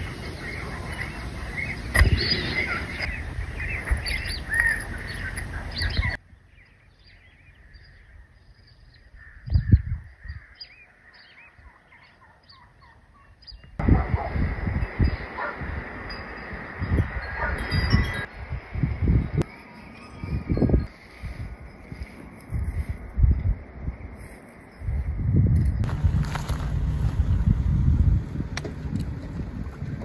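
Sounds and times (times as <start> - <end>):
birds chirping: 0.0 - 18.3
low rumbling noise: 24.9 - 30.0.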